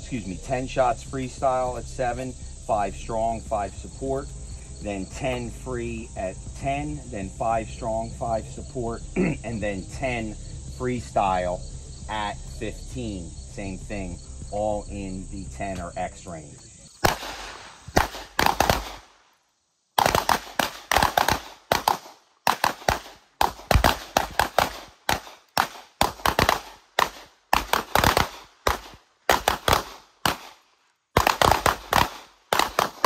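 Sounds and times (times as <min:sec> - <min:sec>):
handgun shots: 0:17.0 - 0:19.1, 0:20.0 - 0:30.6, 0:31.2 - 0:33.0.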